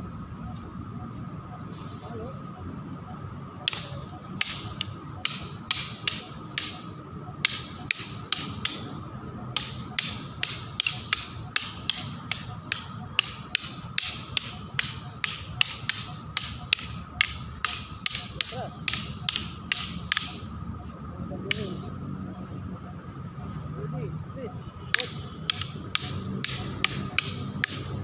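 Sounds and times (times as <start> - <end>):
sticks clacking together: 3.6 - 20.5, 21.5 - 21.8, 24.9 - 28.0.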